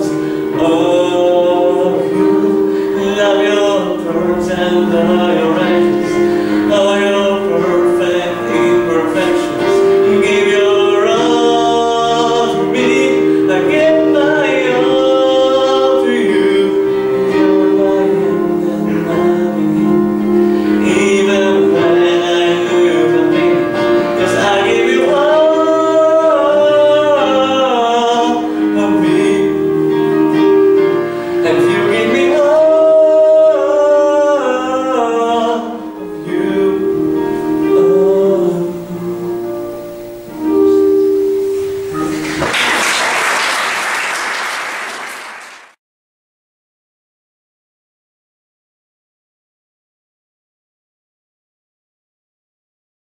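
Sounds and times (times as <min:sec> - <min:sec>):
man singing: 0:00.0 - 0:40.9
keyboard chords: 0:00.0 - 0:45.1.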